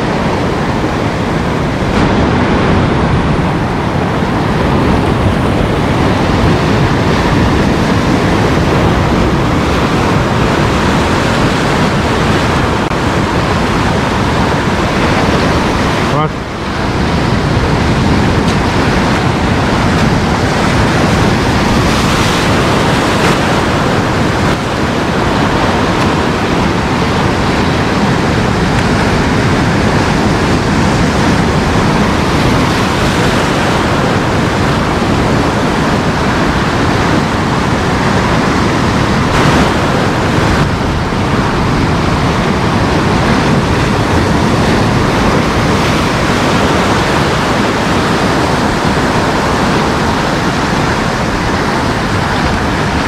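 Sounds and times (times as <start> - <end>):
surf breaking on rocky shore: 0.0 - 53.0.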